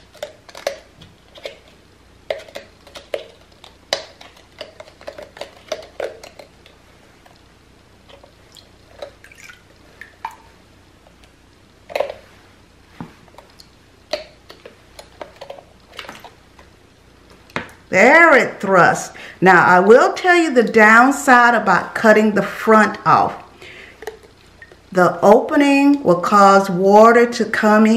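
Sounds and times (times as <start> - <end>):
water dripping: 8.4 - 10.5.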